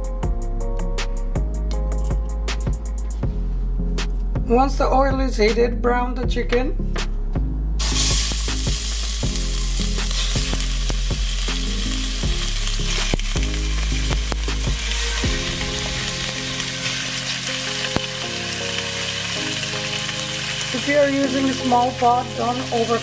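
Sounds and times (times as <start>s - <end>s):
chicken sizzling in hot oil: 7.8s - 23.0s.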